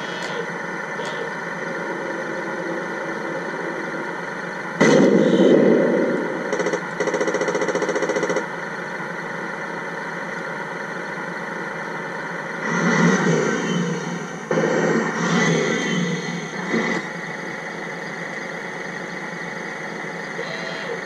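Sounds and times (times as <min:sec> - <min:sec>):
simulated tank engine idling: 0:00.0 - 0:21.0
simulated main gun blast: 0:04.7 - 0:08.6, 0:14.4 - 0:16.6
simulated machine-gun fire: 0:04.8 - 0:08.6, 0:14.4 - 0:16.8.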